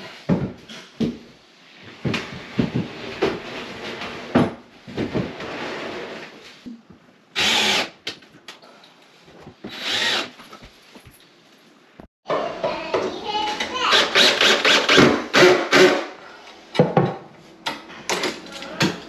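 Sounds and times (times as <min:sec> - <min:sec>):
cordless drill driving screws: 0:07.4 - 0:07.9, 0:09.7 - 0:10.3.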